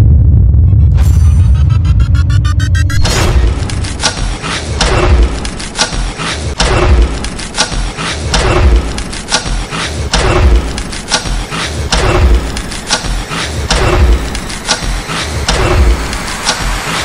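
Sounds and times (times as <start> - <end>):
deep booming percussion hits: 0.0 - 5.4, 6.5 - 7.2, 8.2 - 9.0, 10.0 - 10.8, 11.8 - 16.3
sharp strikes: 0.9 - 16.8.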